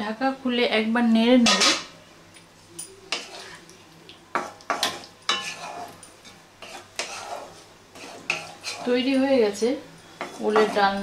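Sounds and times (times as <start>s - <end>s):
wooden spatula scraping pan: 3.1s - 3.6s, 4.3s - 9.6s, 10.2s - 11.0s.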